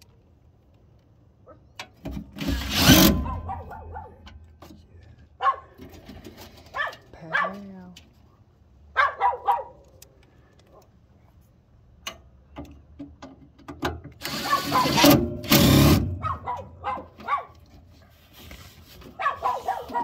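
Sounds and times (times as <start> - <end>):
power driver whirring: 2.4 - 3.3, 14.2 - 16.1
dog barking: 3.2 - 4.3, 5.4 - 5.7, 6.7 - 7.7, 8.9 - 9.8, 14.4 - 15.0, 16.2 - 17.6, 19.2 - 20.0.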